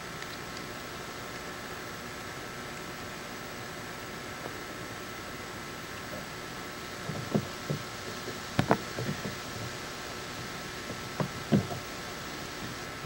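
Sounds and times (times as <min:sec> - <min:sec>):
steady hiss: 0:00.0 - 0:13.0
soft low thumps and knocks: 0:07.0 - 0:09.8.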